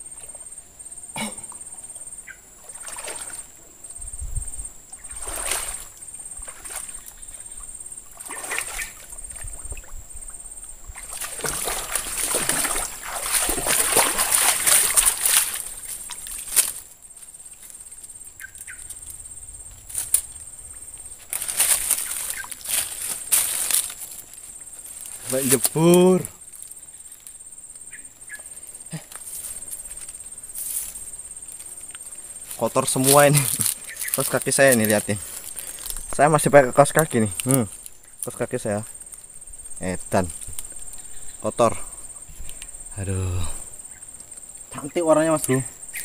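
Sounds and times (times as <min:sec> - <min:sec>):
water splashing and sloshing: 0:01.5 - 0:03.6, 0:05.0 - 0:25.6
man wading through water: 0:02.6 - 0:03.6, 0:05.0 - 0:18.0.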